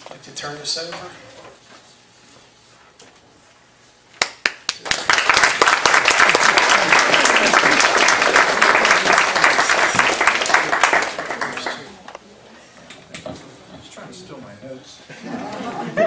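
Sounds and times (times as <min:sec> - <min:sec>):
audience applauding: 0:04.2 - 0:12.1.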